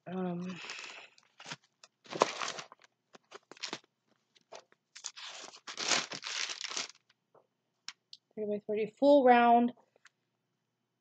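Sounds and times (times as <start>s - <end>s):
packaging rustling and crinkling: 0.5s - 7.2s.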